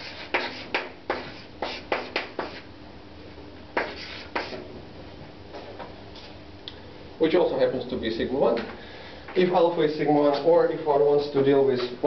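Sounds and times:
chalk tapping and scraping on blackboard: 0:00.0 - 0:02.7, 0:03.8 - 0:04.6.

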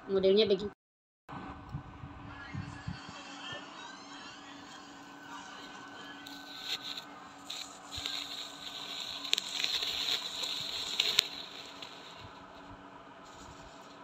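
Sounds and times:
close scraping and rustling: 0:05.6 - 0:12.6, 0:13.3 - 0:14.0.

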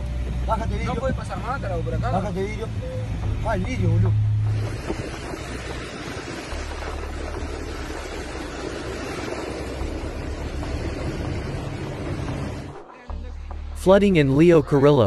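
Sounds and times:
wind buffeting microphone: 0:00.0 - 0:12.9
wildfire rushing: 0:00.0 - 0:13.1.

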